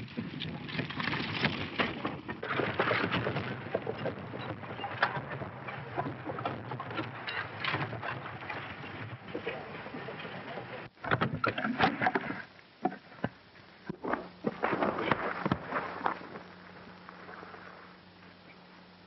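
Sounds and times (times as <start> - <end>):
film soundtrack hiss and hum: 0.0 - 19.0
wooden crashes and knocks: 0.6 - 9.3.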